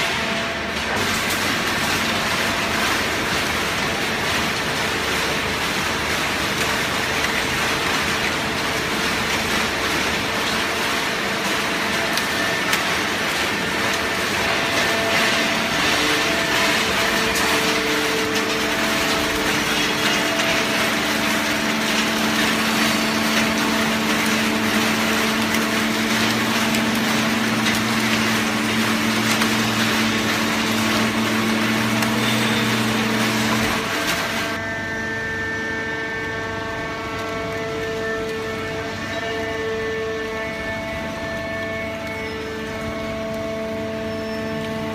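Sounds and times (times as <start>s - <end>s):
baler machine running: 0.0s - 34.6s
low machine hum: 0.0s - 44.9s.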